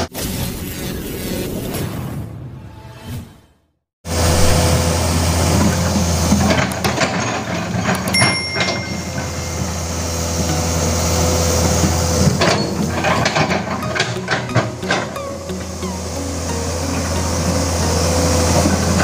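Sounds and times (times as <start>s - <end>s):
excavator diesel engine: 4.1s - 19.0s.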